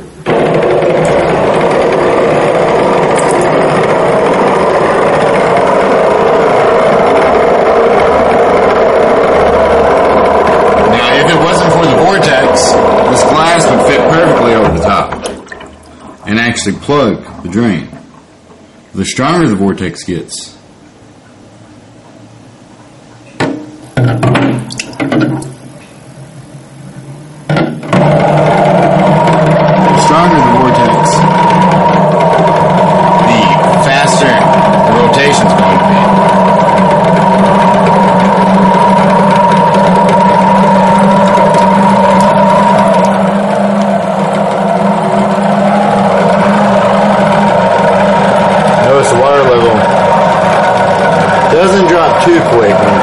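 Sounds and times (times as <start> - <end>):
water rushing down drain: 0.0 - 19.5, 27.6 - 53.0
water draining from sink: 9.9 - 18.7, 24.3 - 25.6.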